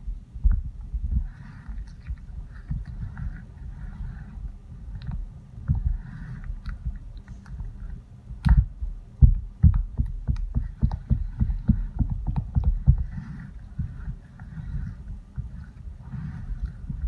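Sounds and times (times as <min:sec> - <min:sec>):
spatula stirring wet batter: 0:10.5 - 0:17.0.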